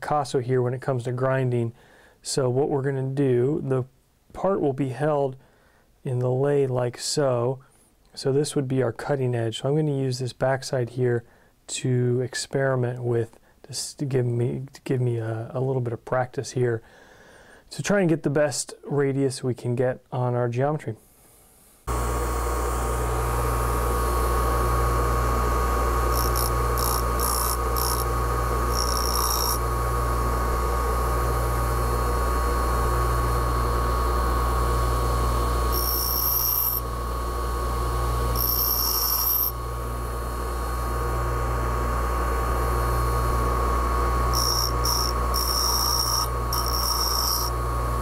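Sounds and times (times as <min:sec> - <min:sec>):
bench grinder motor humming: 0:21.9 - 0:48.0
steel hissing on grinding wheel: 0:25.9 - 0:29.7, 0:35.7 - 0:36.8, 0:38.3 - 0:39.6, 0:44.3 - 0:47.6.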